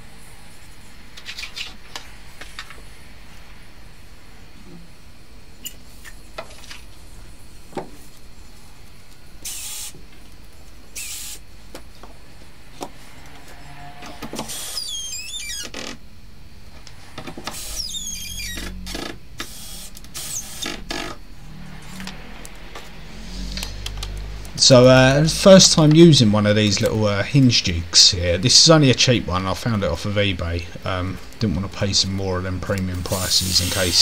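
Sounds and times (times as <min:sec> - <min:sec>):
cordless drill motor whine: 0:09.4 - 0:10.0, 0:10.9 - 0:11.4, 0:13.2 - 0:16.0, 0:17.0 - 0:24.3.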